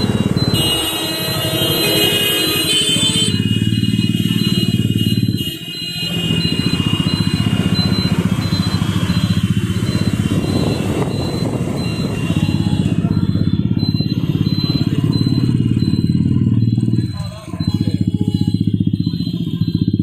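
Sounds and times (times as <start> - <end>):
small motorbike engine running: 0.0 - 20.0
wind buffeting microphone: 8.1 - 15.0.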